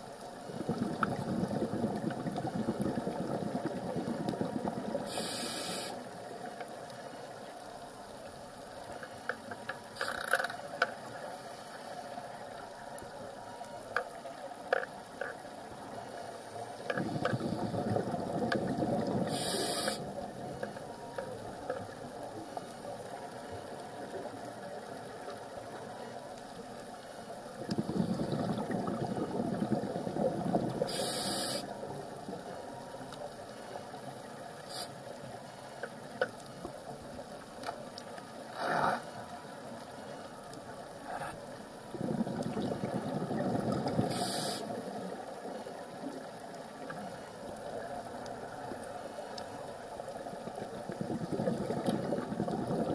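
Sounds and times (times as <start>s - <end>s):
exhaled bubbles rushing: 0.4s - 5.2s, 17.0s - 20.4s, 27.5s - 31.2s, 41.8s - 44.2s, 50.2s - 52.9s
underwater hiss: 0.5s - 7.2s, 11.2s - 12.4s, 15.9s - 20.8s, 27.6s - 32.6s, 33.5s - 35.6s, 38.5s - 39.2s, 41.0s - 46.1s
diver breathing through regulator: 5.1s - 6.0s, 19.1s - 20.1s, 30.8s - 31.7s, 43.8s - 44.8s.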